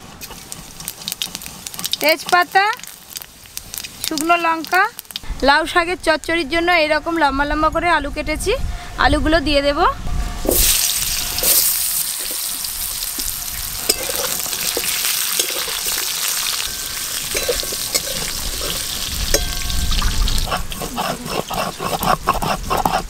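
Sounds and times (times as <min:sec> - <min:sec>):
potatoes sizzling in hot oil: 0:00.2 - 0:05.3, 0:10.4 - 0:20.5
spatula scraping a pan: 0:13.8 - 0:23.0.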